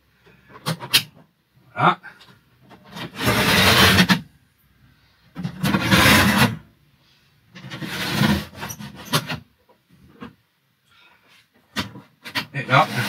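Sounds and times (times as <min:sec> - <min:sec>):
blind bar rasping along rails: 0:03.0 - 0:04.2, 0:05.6 - 0:06.6, 0:07.6 - 0:09.4, 0:12.3 - 0:13.0.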